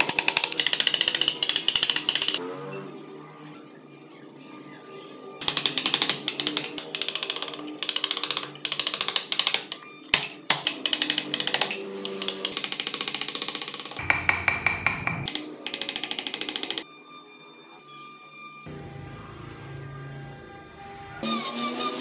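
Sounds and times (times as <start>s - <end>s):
chisel cutting wood: 0.0s - 2.4s, 5.4s - 16.8s, 21.2s - 22.0s.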